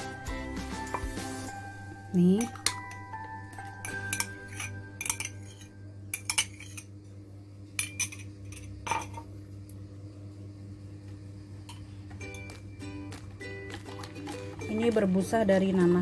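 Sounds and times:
steady low hum: 1.5 - 16.0
glass and plastic clinking: 2.3 - 6.9, 7.8 - 9.3, 12.1 - 16.0.

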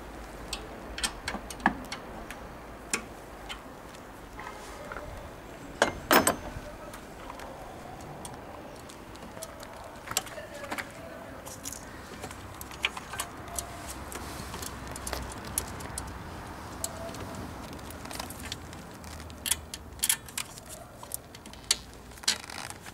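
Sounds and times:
metallic clinks of tools: 5.8 - 6.5.

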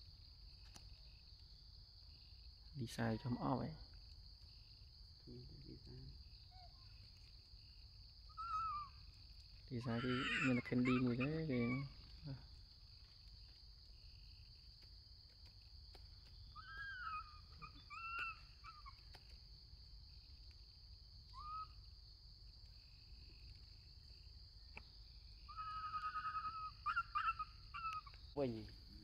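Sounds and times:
monkey coo calls: 8.3 - 9.1, 9.7 - 12.4, 16.5 - 19.3, 21.3 - 21.8, 25.4 - 28.2.

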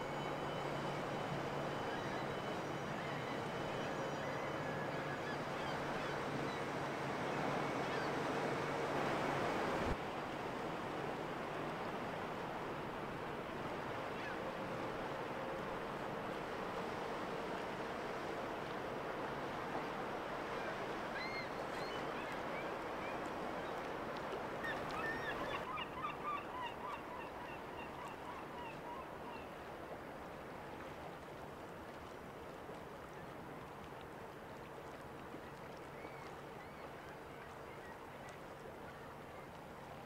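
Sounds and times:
gulls calling: 0.0 - 9.1
rush of water and wind: 0.0 - 40.0.

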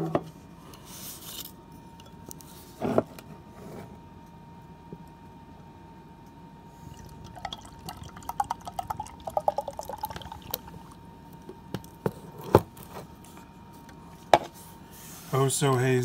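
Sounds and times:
beer glugging into a glass: 6.8 - 11.0.

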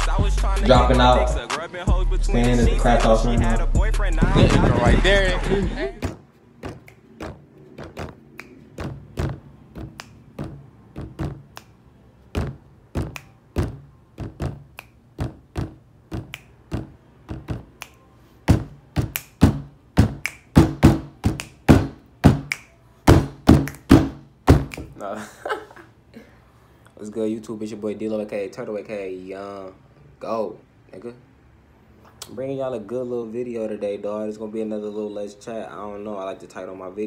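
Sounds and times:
fists knocking on tabletop: 6.0 - 11.5, 12.3 - 17.8, 18.5 - 24.9.

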